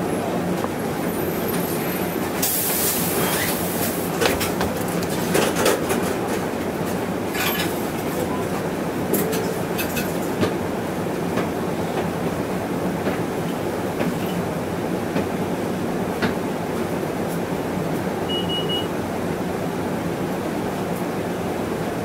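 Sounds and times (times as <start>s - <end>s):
bus engine and road noise: 0.0s - 22.0s
sharp knocks and rattles: 4.1s - 6.3s.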